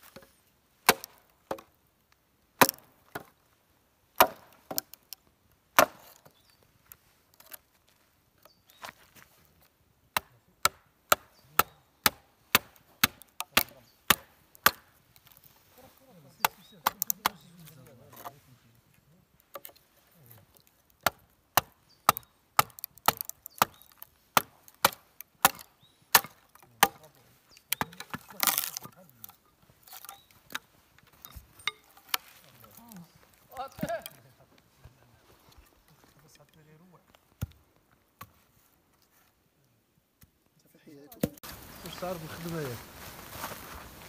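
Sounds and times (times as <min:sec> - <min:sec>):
wood crackling as it splits: 0:00.8 - 0:03.4, 0:04.2 - 0:08.5, 0:10.1 - 0:18.3, 0:19.4 - 0:34.3.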